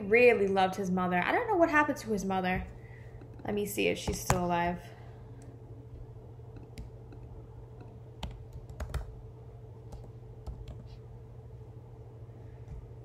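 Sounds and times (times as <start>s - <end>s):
faint steady hum: 0.0s - 13.0s
computer keyboard typing: 6.5s - 9.2s, 9.9s - 11.0s.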